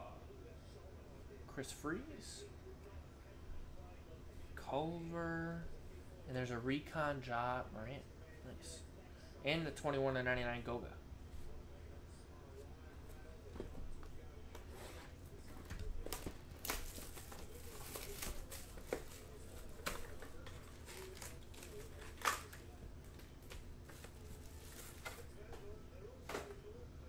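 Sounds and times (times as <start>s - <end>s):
foil packs crinkling: 16.0s - 25.3s.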